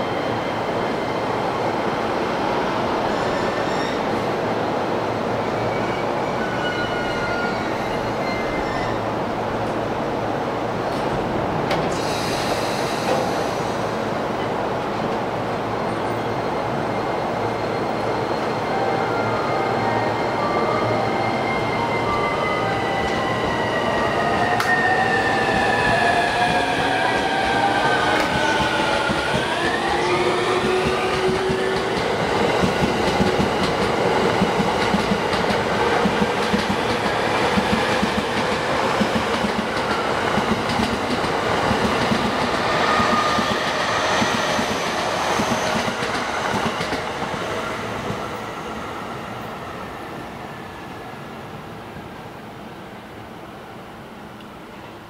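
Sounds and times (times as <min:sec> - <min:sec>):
train wheels clattering on rails: 0:25.6 - 0:47.4.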